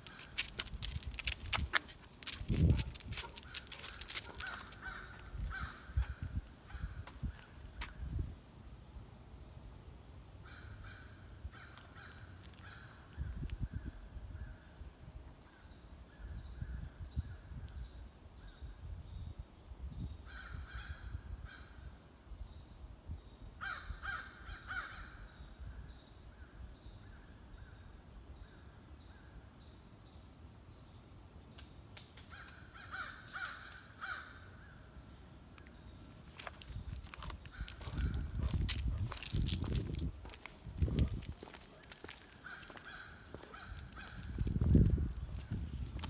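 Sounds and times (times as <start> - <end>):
crows cawing: 3.4 - 7.1, 23.6 - 25.1, 32.3 - 34.6, 41.4 - 44.4.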